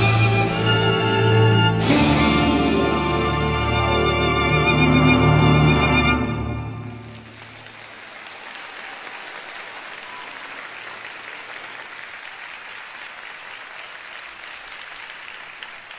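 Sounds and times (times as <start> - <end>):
violin music: 0.0 - 7.2
audience applauding: 2.6 - 15.9.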